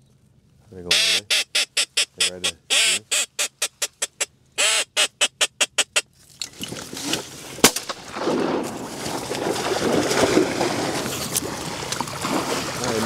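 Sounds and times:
duck quacking: 0.9s - 6.0s
rustling noise: 6.1s - 12.8s
shotgun blast: 7.6s - 8.8s.

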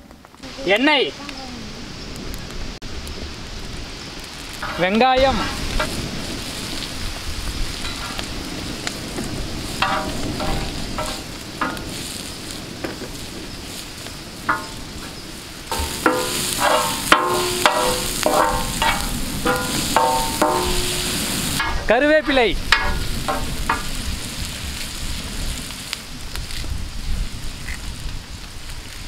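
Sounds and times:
onions sizzling in oil: 0.4s - 29.0s
steel spatula scraping pan: 9.8s - 12.1s, 15.7s - 21.9s.

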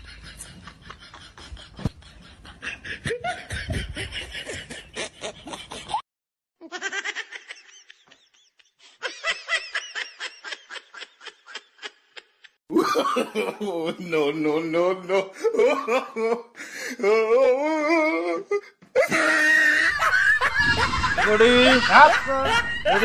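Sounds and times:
person laughing: 0.0s - 6.0s, 15.4s - 23.0s.

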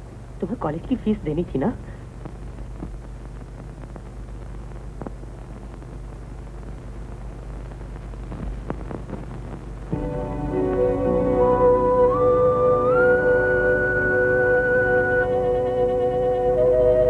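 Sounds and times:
faint crackles: 0.0s - 10.1s
film soundtrack hum and hiss: 0.0s - 17.0s
film music with held notes: 9.9s - 17.0s.

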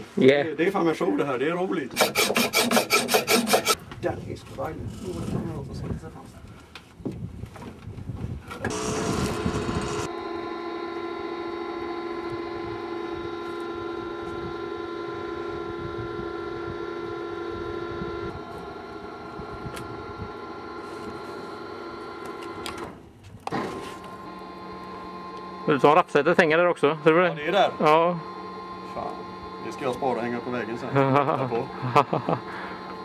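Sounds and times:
crane motor whining: 1.9s - 3.8s, 8.6s - 33.0s.

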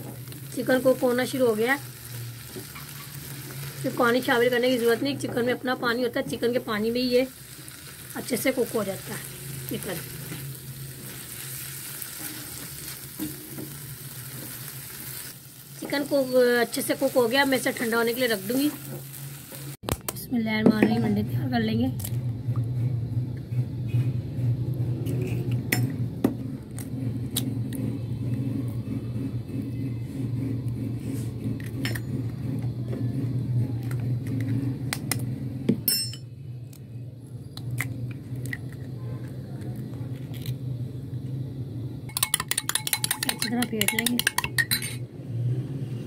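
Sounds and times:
eggs cracked on a bowl: 42.1s - 44.8s
spoon whisking in glass bowl: 42.1s - 44.8s.

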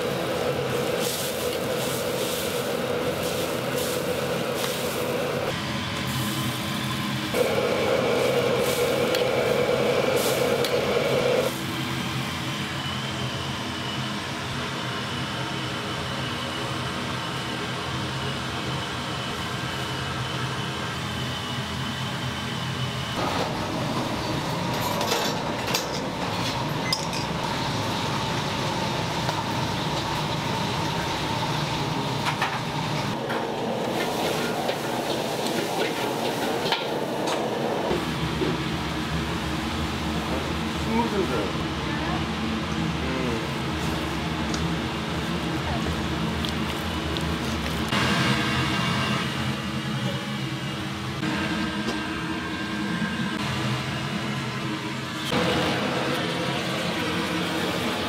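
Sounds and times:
mechanical hum: 0.0s - 58.0s
clinks of dishes and utensils: 26.8s - 27.4s.

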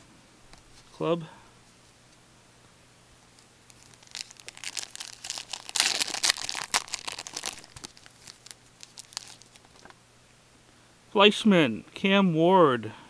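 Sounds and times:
wrapper tearing and crinkling: 3.7s - 9.9s.

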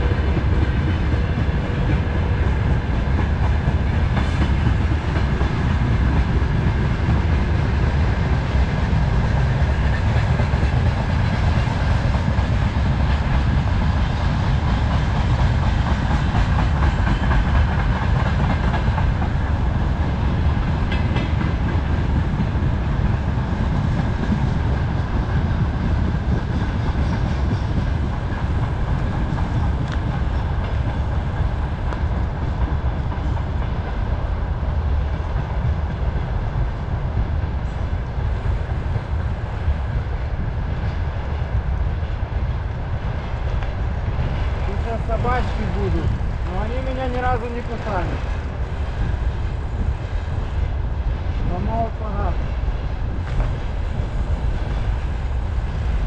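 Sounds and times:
freight train rumbling past: 0.0s - 56.0s.

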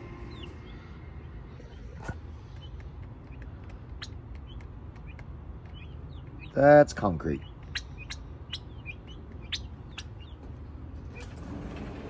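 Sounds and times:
chicks peeping: 0.0s - 12.0s
low background rumble: 0.0s - 12.0s
sharp clicks: 1.9s - 6.5s.

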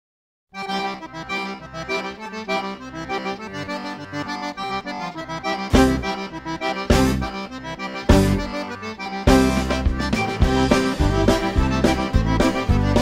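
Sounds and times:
instrumental background music: 0.6s - 13.0s
heavy low beats: 5.6s - 8.7s, 9.3s - 13.0s.

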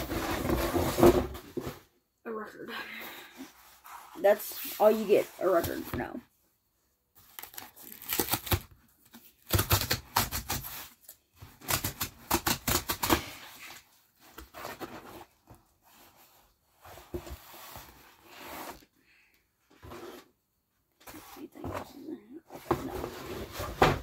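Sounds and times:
packaging crackling and tearing: 7.2s - 8.8s.

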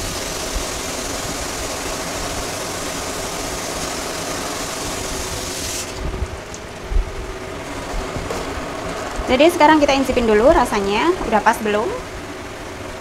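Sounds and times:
food sizzling in a wok: 0.0s - 6.0s.

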